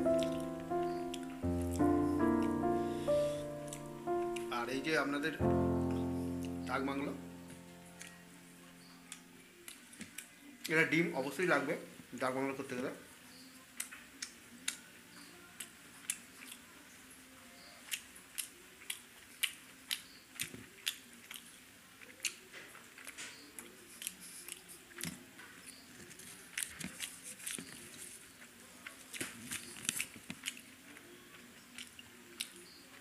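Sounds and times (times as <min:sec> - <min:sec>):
person chewing: 0:23.0 - 0:25.2, 0:29.1 - 0:30.8, 0:31.8 - 0:32.6.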